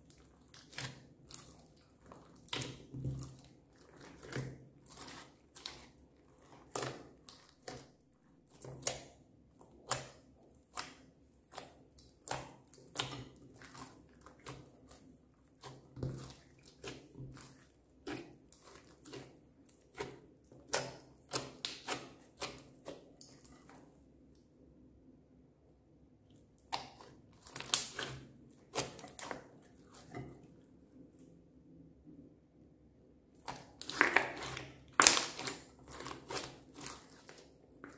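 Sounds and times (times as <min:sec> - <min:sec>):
slime squishing and popping: 0:33.5 - 0:37.4.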